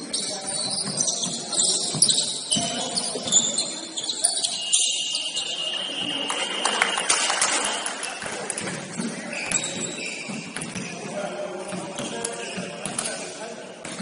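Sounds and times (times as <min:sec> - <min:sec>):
shoes squeaking on hardwood floor: 0:00.0 - 0:06.2, 0:08.4 - 0:13.2
voices in gym: 0:00.0 - 0:14.0.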